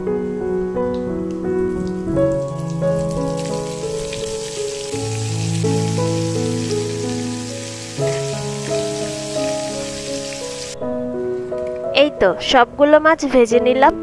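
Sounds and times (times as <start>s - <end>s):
soft background music: 0.0s - 14.0s
hot oil sizzling: 1.9s - 10.8s.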